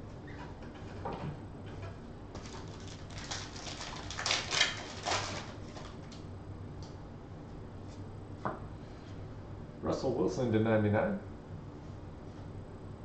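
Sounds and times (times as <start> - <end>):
wrapper tearing and crinkling: 2.4 - 6.2.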